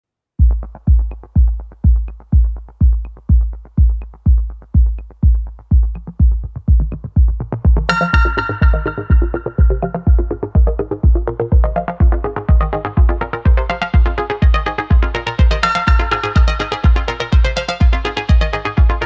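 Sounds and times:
kick drum beat: 0.4s - 19.0s
bright synthesizer chord: 7.9s - 19.0s.

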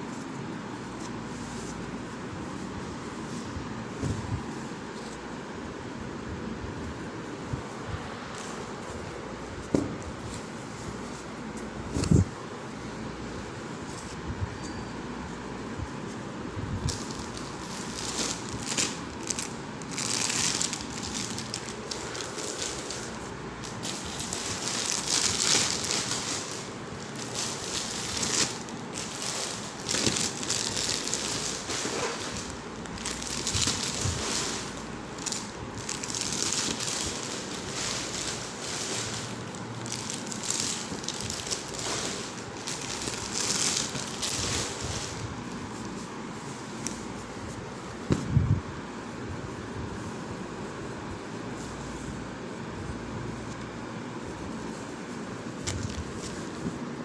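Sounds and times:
plastic wrappers crinkling: 16.8s - 48.0s, 54.2s - 57.0s.

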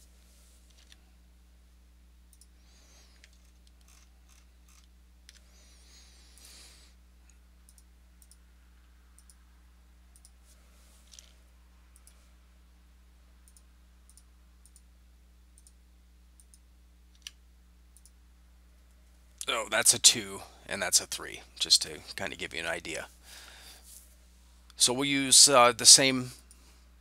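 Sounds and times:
low electrical hum: 0.0s - 27.0s
computer mouse clicks: 2.3s - 2.5s, 7.7s - 8.4s, 9.2s - 9.4s, 10.1s - 10.4s, 12.0s - 12.2s, 13.4s - 14.9s, 16.4s - 16.6s, 18.0s - 18.2s.

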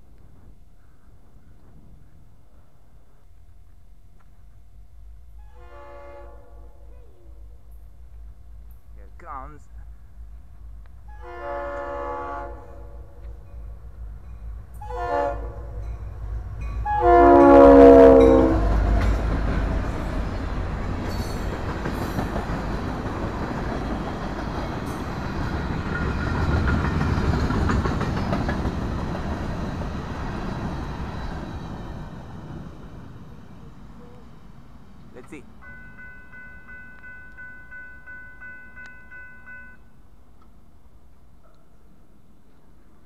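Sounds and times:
locomotive air horn blasts: 5.4s - 6.7s, 11.1s - 13.0s, 14.8s - 15.8s, 16.8s - 18.9s
freight cars rumbling over rails: 6.5s - 36.6s.

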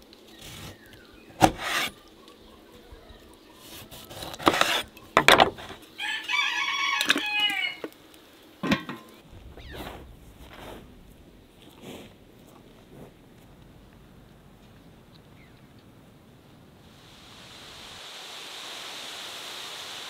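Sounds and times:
knife cutting onto wooden board: 1.4s - 2.0s, 4.1s - 5.6s
rooster crowing: 6.0s - 7.9s.

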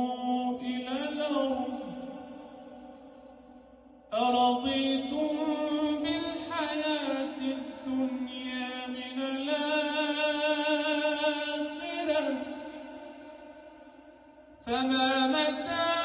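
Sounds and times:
man chanting into microphone: 0.0s - 2.8s, 4.1s - 13.7s, 14.6s - 16.0s.

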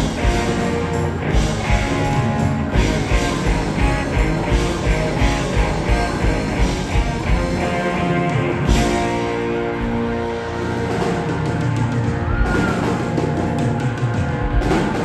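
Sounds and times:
live rock band playing: 0.0s - 15.0s.

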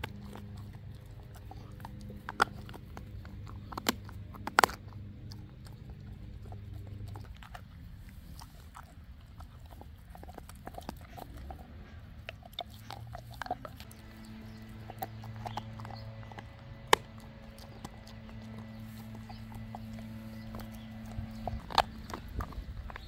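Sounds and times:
dog chewing wetly: 0.0s - 23.0s
loud sharp bone crack: 1.8s - 5.7s, 13.9s - 23.0s.

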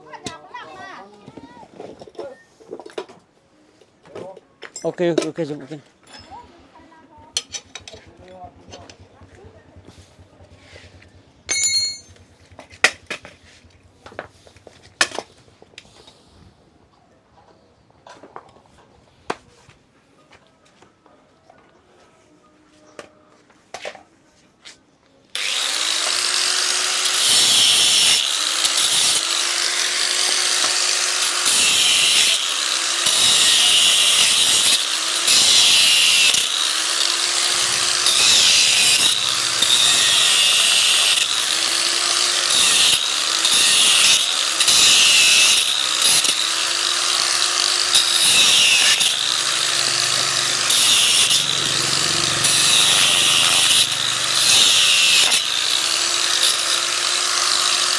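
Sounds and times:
power tool surging: 25.3s - 57.9s.

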